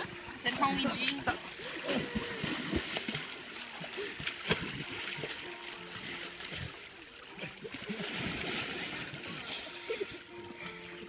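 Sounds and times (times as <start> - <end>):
pool water splashing: 0.0 - 11.0
sharp water slap: 4.2 - 5.3.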